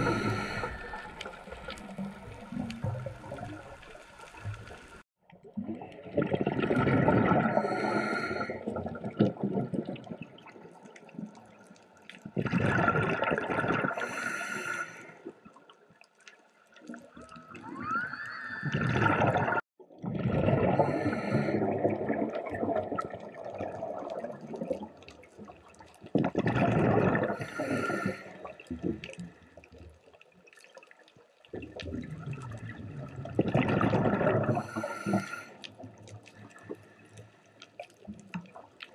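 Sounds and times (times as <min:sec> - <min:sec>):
bubbling exhaled air underwater: 0:00.0 - 0:11.6, 0:12.2 - 0:15.3, 0:16.9 - 0:29.4, 0:31.5 - 0:37.0
short rising whistle: 0:17.6 - 0:18.9.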